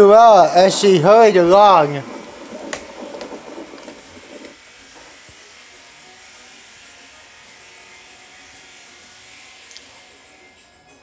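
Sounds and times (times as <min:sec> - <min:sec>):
faint steady hiss: 0:00.0 - 0:07.2
muffled film soundtrack from television: 0:00.0 - 0:11.0.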